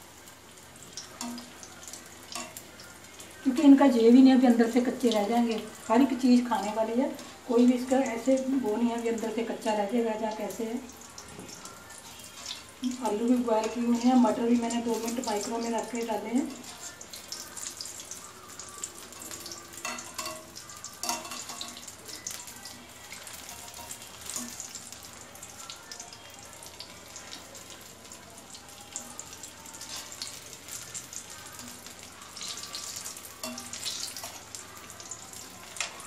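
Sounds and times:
food deep-frying in hot oil: 0.0 - 36.0.

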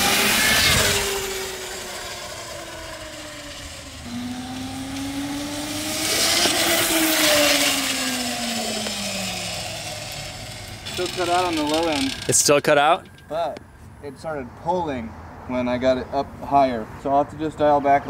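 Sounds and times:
electric motorcycle motor whine: 0.0 - 13.4
chain and tyre noise: 0.0 - 14.4.

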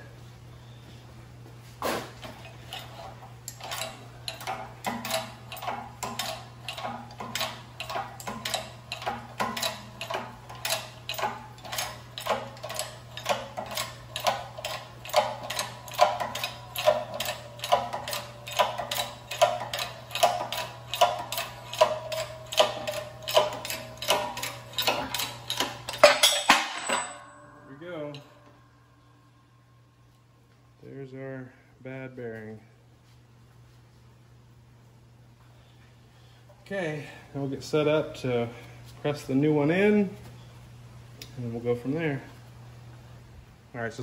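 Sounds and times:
hydraulic press pump strokes: 1.8 - 26.0
metallic clack of pump handle: 2.4 - 28.3.

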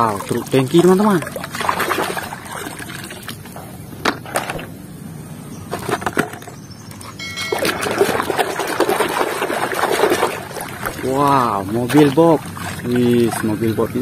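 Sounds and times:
soapy water sloshing and splashing: 0.0 - 3.6, 7.5 - 14.0.

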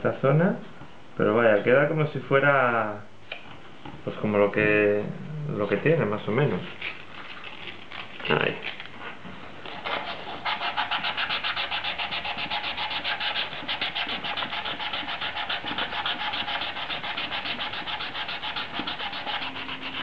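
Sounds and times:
sandpaper rubbing on plastic: 9.7 - 20.0.

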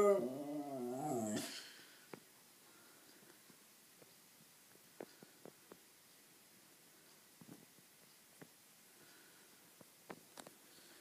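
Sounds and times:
faint soft clicks: 9.8 - 10.6.

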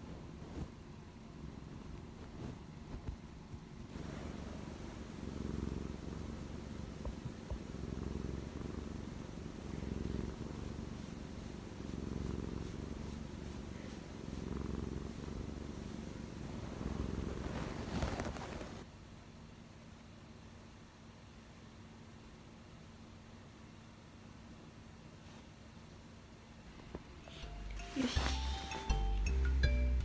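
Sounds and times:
cat purring: 0.0 - 18.9, 26.6 - 29.2.

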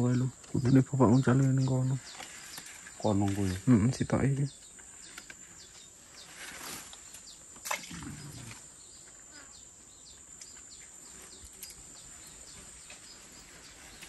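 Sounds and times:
bird or insect chirps: 0.0 - 14.0.

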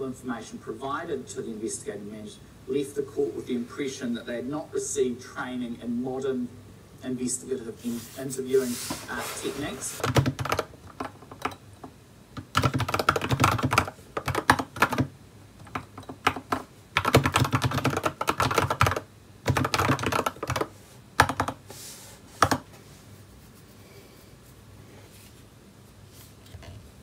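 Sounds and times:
typing on computer keyboard: 10.0 - 11.6, 12.4 - 21.6, 22.4 - 22.7.

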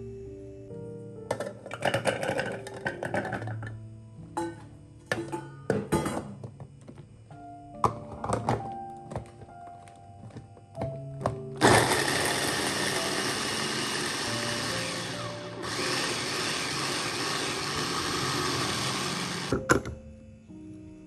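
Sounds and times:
electric food chopper running: 11.6 - 19.7.

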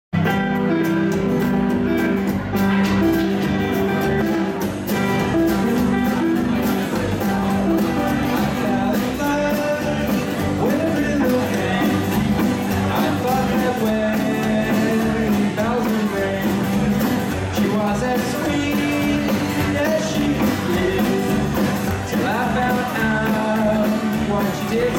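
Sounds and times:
rockabilly band playing: 0.1 - 24.9
man singing: 6.6 - 24.9.

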